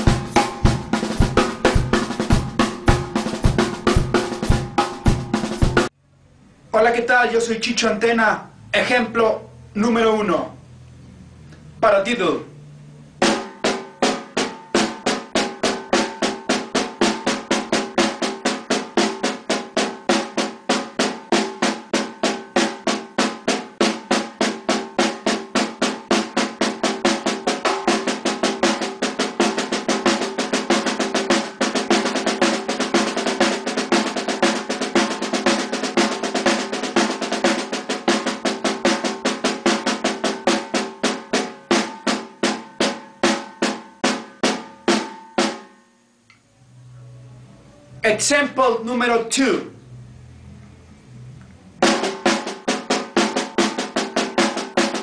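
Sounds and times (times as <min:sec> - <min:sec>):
snare drum strokes and roll: 0:00.0 - 0:05.9, 0:13.2 - 0:45.7, 0:51.8 - 0:55.0.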